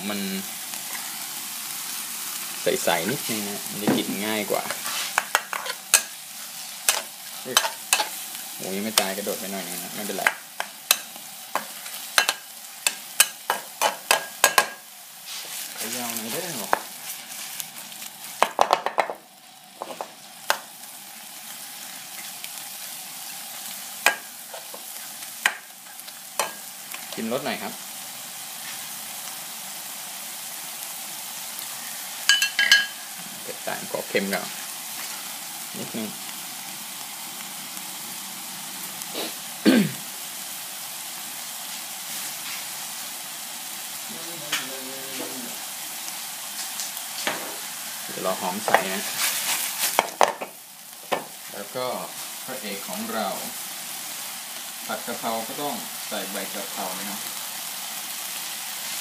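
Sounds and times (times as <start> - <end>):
meat sizzling in a frying pan: 0.0 - 59.0
metal spatula scraping pan: 4.6 - 6.2.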